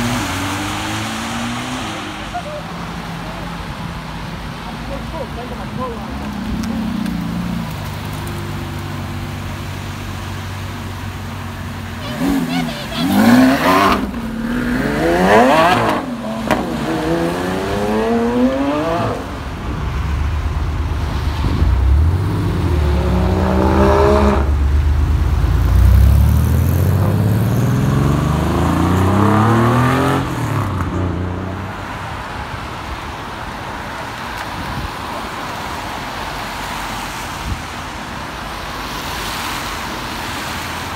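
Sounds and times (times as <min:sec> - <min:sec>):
sports car engines revving: 0:00.0 - 0:31.7.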